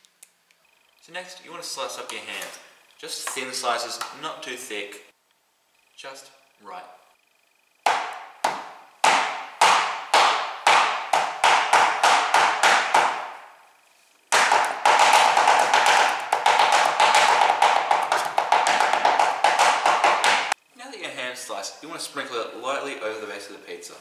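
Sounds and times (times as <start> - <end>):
knife chopping on cutting board: 7.9 - 13.3, 14.3 - 20.6.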